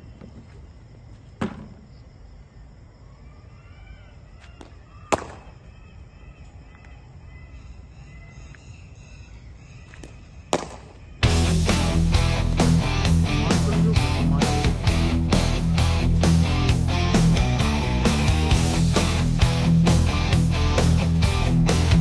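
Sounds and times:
cricket bat hitting ball: 0:01.4 - 0:01.8, 0:04.6 - 0:05.6, 0:10.0 - 0:11.0
ball bouncing on concrete: 0:01.4 - 0:01.9, 0:04.5 - 0:05.5, 0:09.9 - 0:11.0
music: 0:11.2 - 0:22.0.

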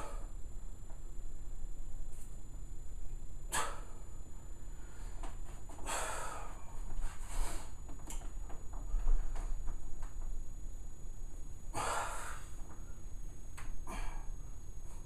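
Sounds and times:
man breathing out hard: 0:11.7 - 0:12.6, 0:13.8 - 0:14.4.

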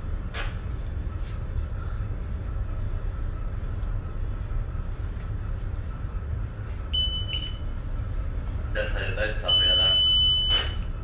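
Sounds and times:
ship machinery rumble: 0:00.0 - 0:11.0
alarm buzzer high tone: 0:06.9 - 0:07.6, 0:09.4 - 0:10.8.

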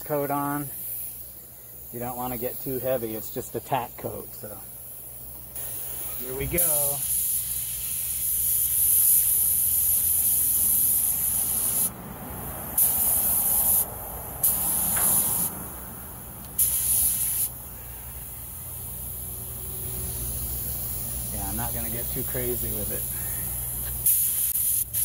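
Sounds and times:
spray gun hissing: 0:00.1 - 0:12.0, 0:12.7 - 0:15.6, 0:16.5 - 0:25.0.

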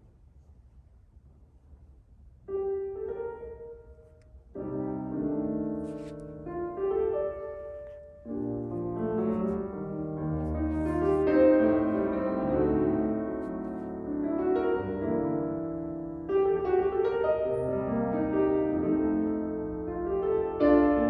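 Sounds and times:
solo grand piano: 0:00.0 - 0:21.0.

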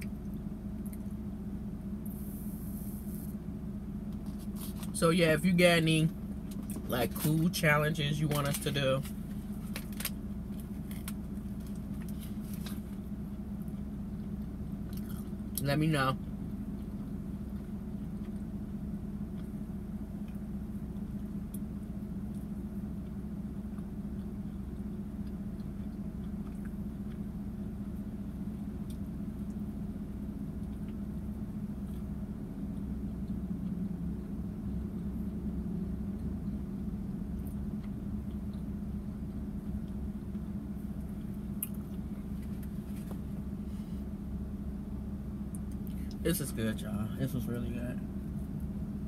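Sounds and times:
low car cabin hum: 0:00.0 - 0:49.0
person chewing food: 0:09.1 - 0:15.6, 0:16.2 - 0:44.1.

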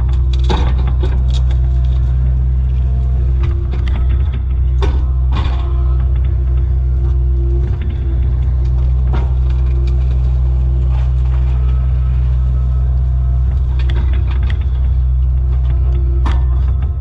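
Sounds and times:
mulcher head chewing brush: 0:00.0 - 0:16.9
excavator diesel engine and hydraulics: 0:00.0 - 0:17.0
sharp cracks and knocks: 0:00.0 - 0:17.0.

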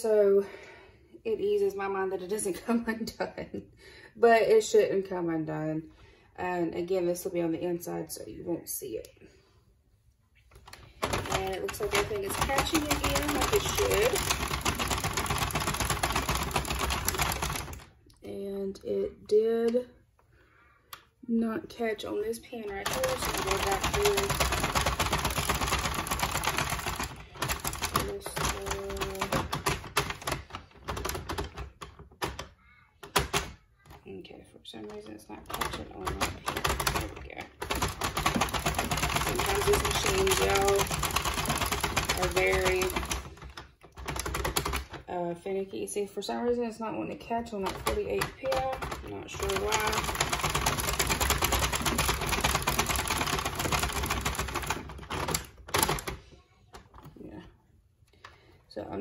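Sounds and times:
knitting machine needles clicking: 0:10.6 - 0:18.0, 0:22.3 - 0:33.6, 0:34.8 - 0:45.0, 0:47.2 - 0:56.3.

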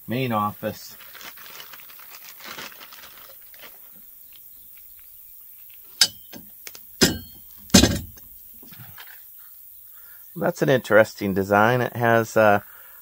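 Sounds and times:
plastic packaging rustling: 0:00.6 - 0:05.9
sharp clacks of bolts: 0:06.0 - 0:08.2.

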